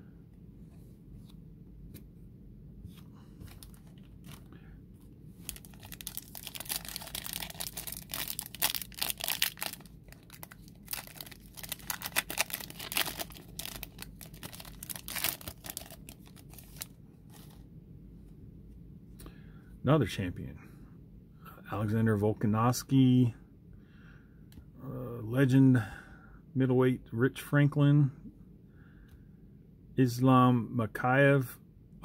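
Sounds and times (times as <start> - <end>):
foil crackling: 5.4 - 16.9
foil wrapper tearing and crinkling: 5.4 - 16.9.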